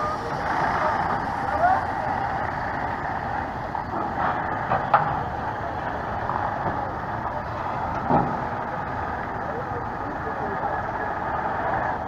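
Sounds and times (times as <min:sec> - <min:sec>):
heavy truck engine running: 0:00.0 - 0:12.0.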